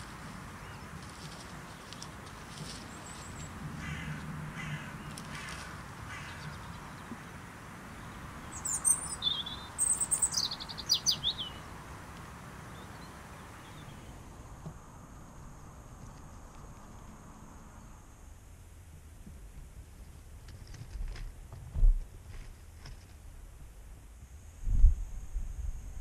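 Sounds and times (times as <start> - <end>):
bird chirping: 2.9 - 12.0, 12.7 - 14.2.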